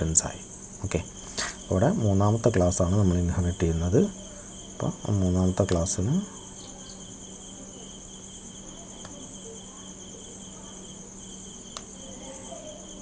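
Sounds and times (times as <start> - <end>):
insect-like chirring: 0.0 - 13.0.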